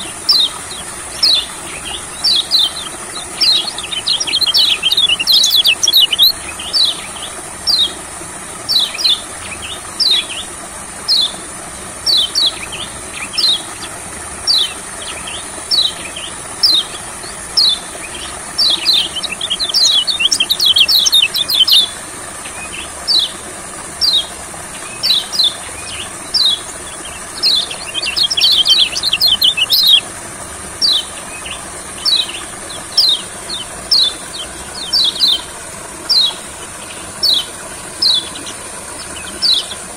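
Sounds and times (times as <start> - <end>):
bird calling and twittering: 0.0 - 39.9
steady high-pitched hiss: 0.0 - 39.9.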